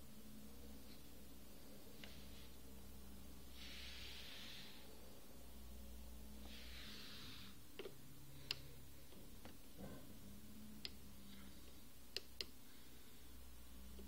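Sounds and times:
soft hiss: 0.0 - 9.2
low steady hum: 0.0 - 14.0.

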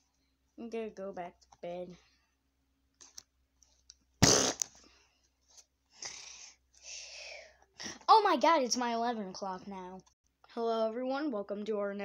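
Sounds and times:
person breathing by mouth: 6.0 - 7.6.

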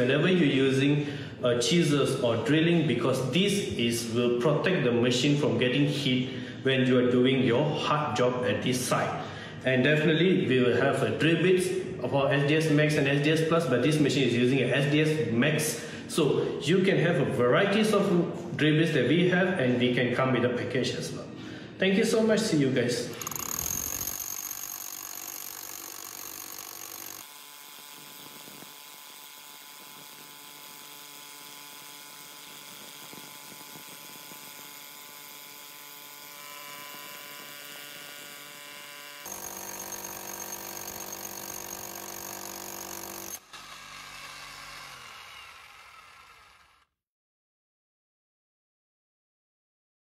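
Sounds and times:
hammer drill drilling into concrete: 23.1 - 47.0.

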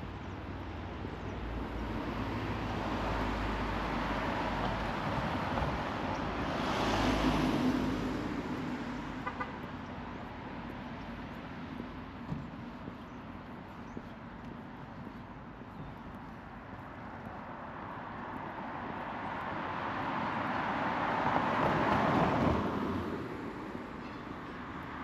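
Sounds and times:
vehicle passing by: 1.6 - 9.2.

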